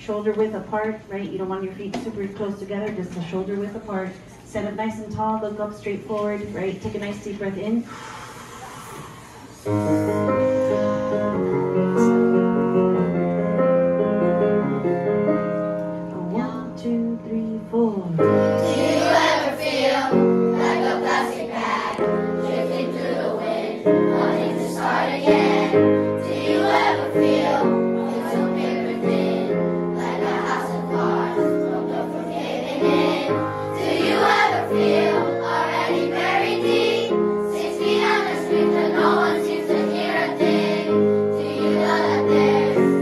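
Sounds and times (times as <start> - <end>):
instrumental accompaniment: 18.1 - 43.0
children singing: 18.6 - 43.0.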